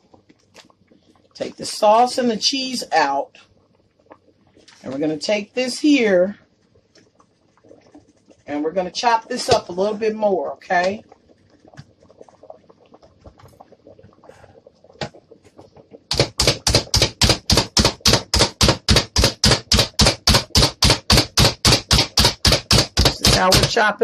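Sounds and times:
plunger food chopper clacking: 16.1s - 23.8s.

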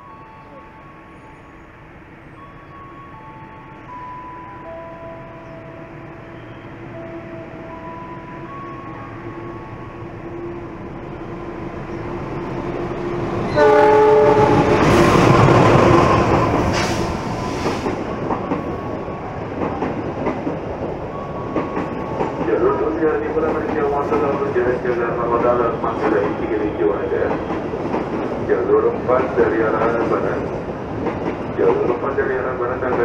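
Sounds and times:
diesel locomotive rumble: 5.2s - 33.0s
train horn blast: 13.5s - 15.3s.

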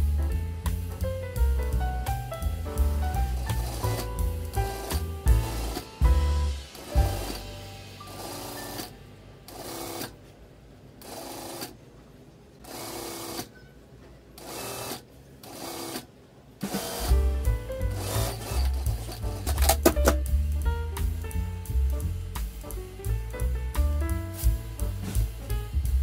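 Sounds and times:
background music with a beat: 0.0s - 9.0s, 16.7s - 26.0s.

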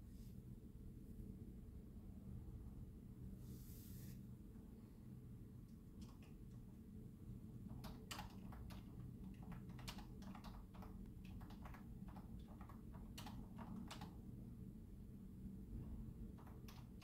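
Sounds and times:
keyboard key clicks: 7.7s - 14.2s, 16.4s - 17.0s.

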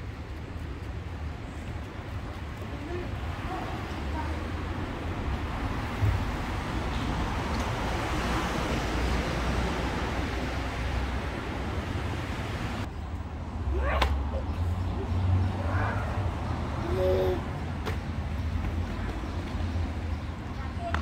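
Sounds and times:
passing traffic: 0.0s - 21.0s.

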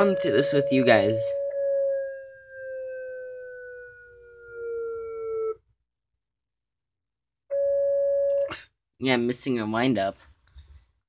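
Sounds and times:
electronic siren tone: 0.0s - 5.6s, 7.5s - 8.5s.

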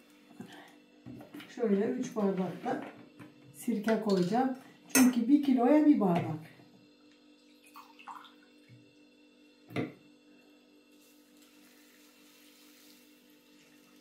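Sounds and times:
liquid pouring into jar: 7.4s - 8.4s.

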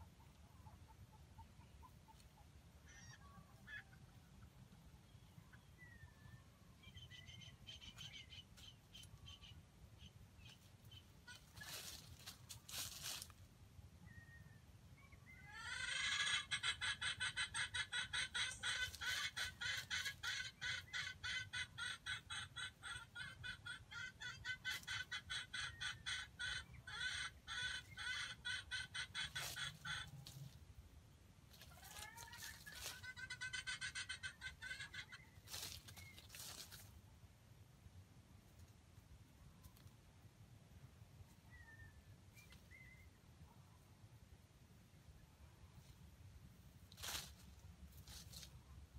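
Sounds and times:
chicken clucking rapidly: 0.0s - 6.1s, 6.8s - 13.4s, 15.0s - 30.6s, 31.5s - 36.9s.

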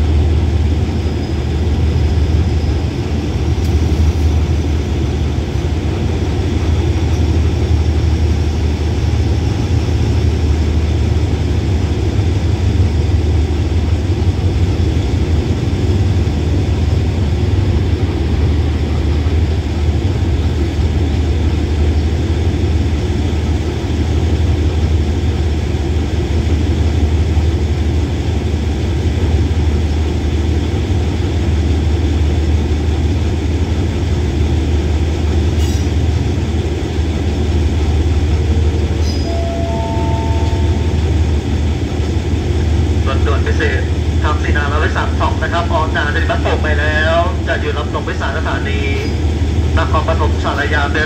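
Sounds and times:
diesel locomotive idling: 0.0s - 51.0s
rising three-note chime: 39.2s - 41.0s.

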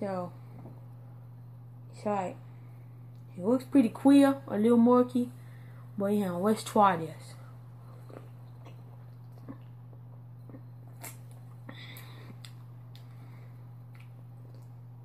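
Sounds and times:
steady low hum: 0.0s - 15.0s
person sipping and swallowing: 7.8s - 13.1s.

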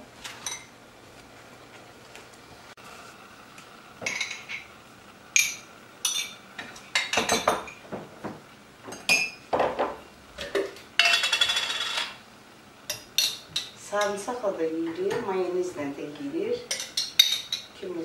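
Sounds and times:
plates and spoons clinking: 0.3s - 0.7s, 4.0s - 4.7s, 5.4s - 8.0s, 8.9s - 12.2s, 16.7s - 17.7s.

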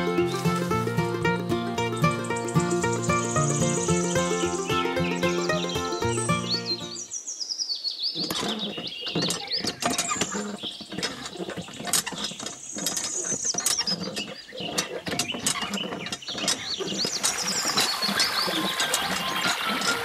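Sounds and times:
high bird-like chirps: 1.8s - 10.3s
hand pump clicking and squeaking: 8.2s - 20.0s
water trickling: 16.3s - 20.0s.

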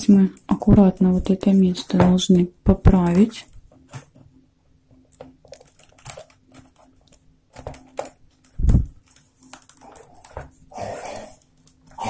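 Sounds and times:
paper tubes crackling and creaking: 5.0s - 12.0s.

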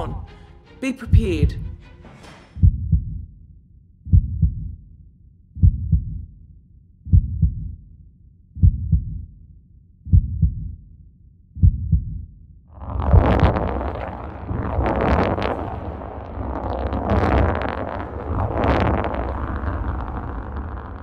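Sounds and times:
heartbeat double thump: 2.6s - 3.2s, 4.1s - 4.7s, 5.6s - 6.2s, 7.1s - 7.7s, 8.6s - 9.2s, 10.1s - 10.7s, 11.6s - 12.2s
loud rush of noise: 12.8s - 21.0s.

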